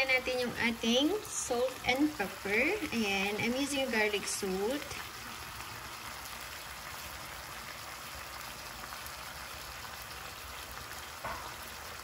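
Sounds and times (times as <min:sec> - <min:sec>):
chicken sizzling in frying pan: 0:00.0 - 0:12.0
short loud knock: 0:11.2 - 0:11.6.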